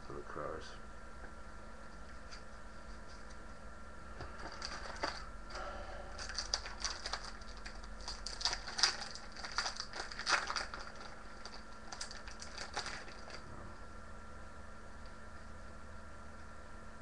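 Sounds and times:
cards crinkling and rustling: 4.2s - 5.3s, 6.2s - 13.4s.

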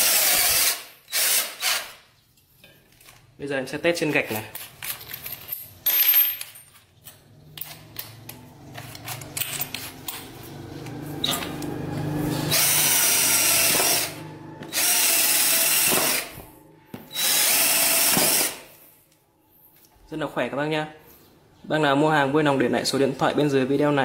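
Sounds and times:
drill boring into brick: 0.0s - 2.0s, 12.5s - 16.4s, 17.1s - 18.7s.

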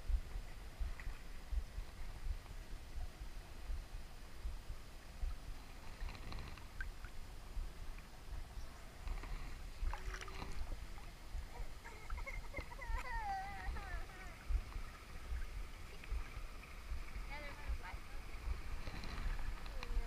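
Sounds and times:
low rumble: 6.6s - 20.0s
water sloshing and splashing: 9.0s - 20.0s
faint clicks: 18.8s - 20.0s.

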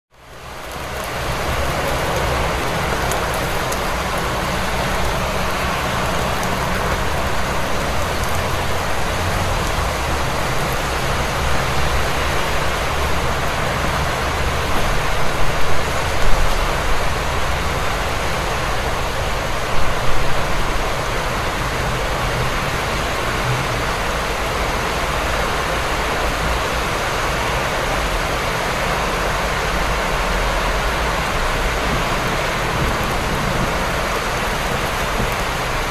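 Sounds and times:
low traffic rumble: 0.1s - 35.9s
steady rain falling: 0.1s - 35.9s.

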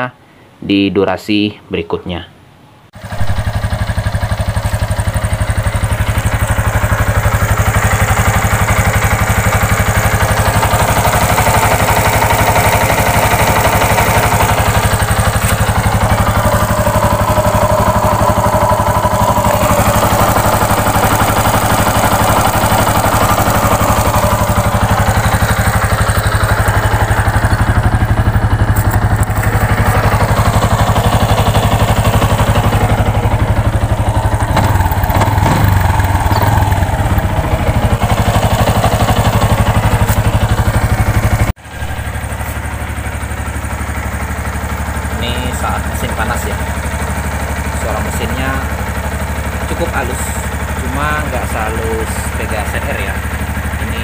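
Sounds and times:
motorcycle engine idling: 3.0s - 54.0s.

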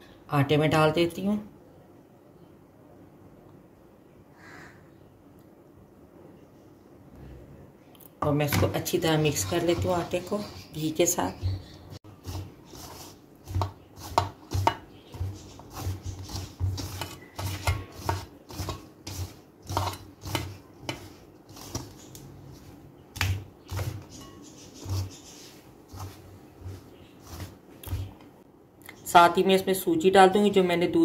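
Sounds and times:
hands scrunching flour in bowl: 8.5s - 28.2s.

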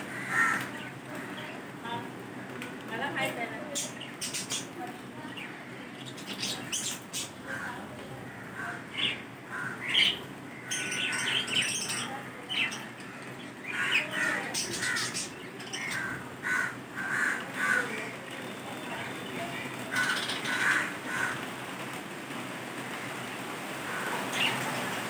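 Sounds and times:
budgerigars chirping and squawking: 3.8s - 4.8s, 5.4s - 7.7s, 8.7s - 17.9s, 19.9s - 21.4s.

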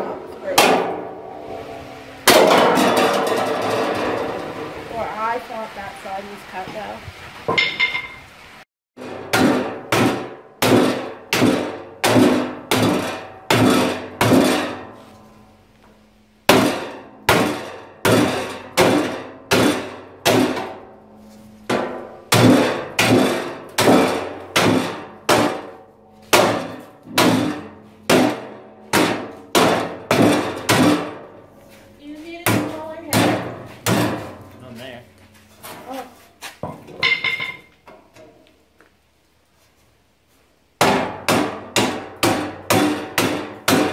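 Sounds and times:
hammer blows on sheet metal: 9.0s - 15.0s, 21.7s - 31.4s, 32.4s - 34.6s, 40.8s - 43.9s.

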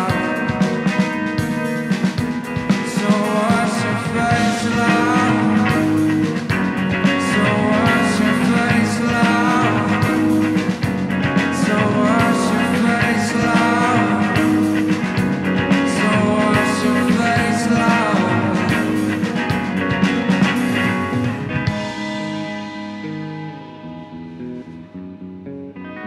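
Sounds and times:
person singing: 0.0s - 1.3s, 2.6s - 21.2s
drums: 0.0s - 26.0s
electric guitar: 0.0s - 26.0s
keyboards: 0.0s - 26.0s.

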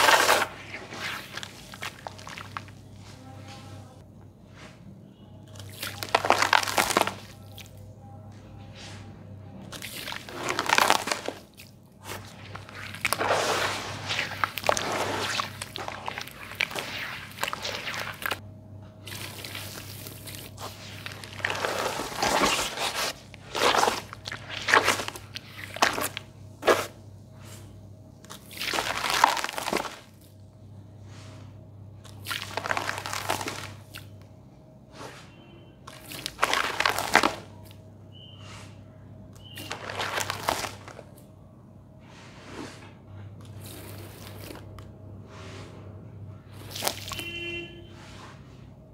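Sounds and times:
hand scraping wet sand paste: 0.0s - 3.9s, 12.0s - 18.4s, 19.1s - 27.6s
hands kneading wet cement paste: 0.0s - 4.0s, 5.4s - 7.8s, 8.4s - 18.4s, 19.0s - 30.3s, 31.0s - 34.1s, 35.9s - 41.4s, 42.0s - 45.8s, 46.4s - 47.4s
water splashing: 9.7s - 18.4s.

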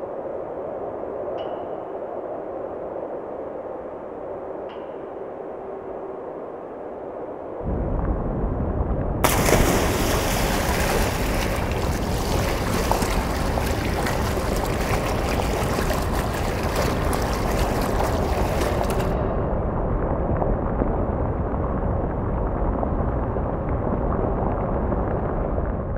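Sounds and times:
deep rumble: 7.1s - 25.9s.

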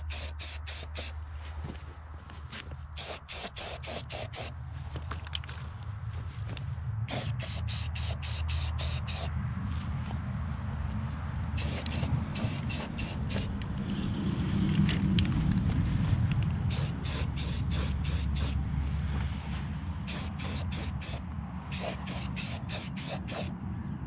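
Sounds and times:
air spray hissing bursts: 0.0s - 1.2s, 3.0s - 4.5s, 7.1s - 9.3s, 11.6s - 13.5s, 16.7s - 18.6s, 20.0s - 23.5s
steady low rumble: 0.0s - 24.0s.

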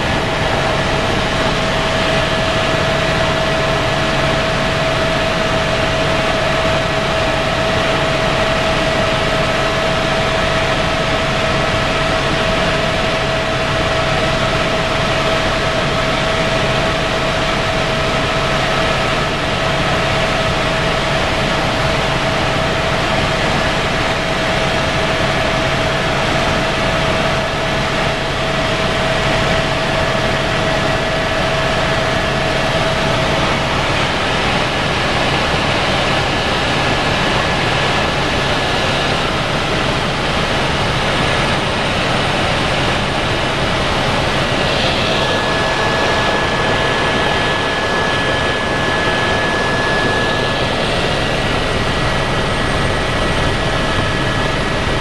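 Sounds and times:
faint steady whine: 0.0s - 55.0s
helicopter engine and rotor: 0.0s - 55.0s.

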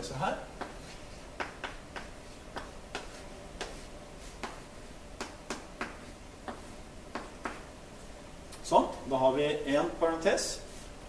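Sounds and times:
chalk tapping and scratching on blackboard: 0.6s - 7.7s.

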